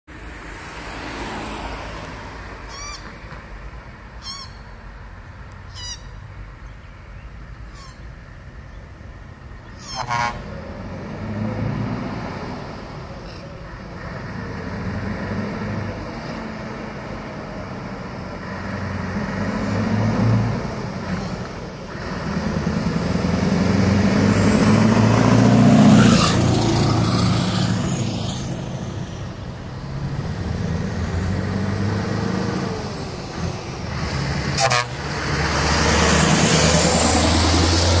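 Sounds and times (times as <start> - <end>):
truck diesel engine passing: 8.9 - 38.0
truck horn tooting: 9.8 - 10.6, 34.5 - 35.2.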